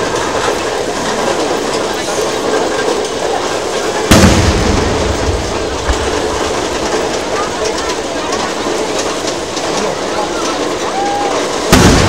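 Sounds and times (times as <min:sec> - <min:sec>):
firework shell boom: 0:04.1 - 0:07.6, 0:11.7 - 0:12.0.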